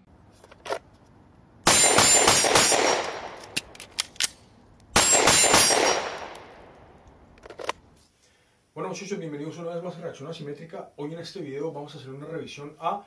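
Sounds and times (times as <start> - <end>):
pistol shots: 1.7 - 3.7, 4.9 - 6.9.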